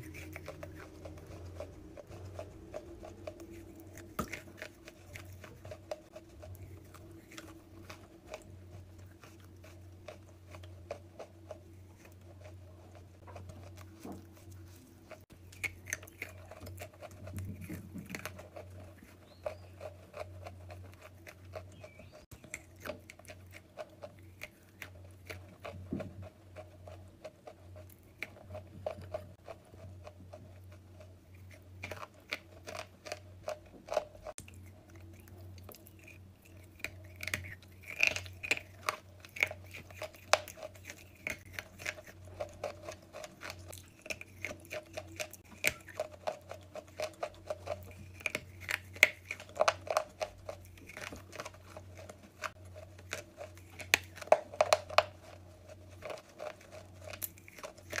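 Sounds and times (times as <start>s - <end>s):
low hum: 0.0s - 27.1s
chalk being chewed: 0.0s - 58.0s.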